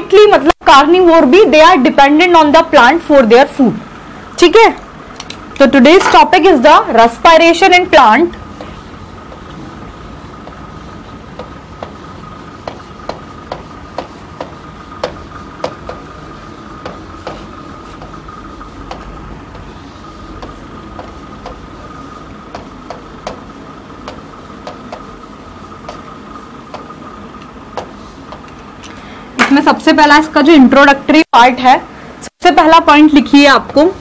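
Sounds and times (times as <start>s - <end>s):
marker tapping on a board: 11.4s - 12.0s, 12.6s - 16.1s, 16.8s - 18.2s, 18.9s - 19.7s, 20.4s - 21.7s, 22.5s - 25.2s, 25.9s - 26.1s, 26.7s - 26.9s, 27.8s - 28.6s.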